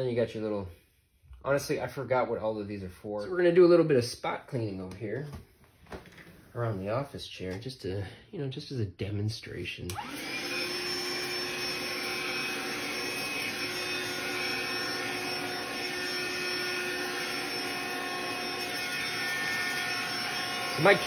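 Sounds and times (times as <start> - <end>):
vacuum cleaner switching on: 9.9 - 21.0
vacuum motor whine: 9.9 - 21.0.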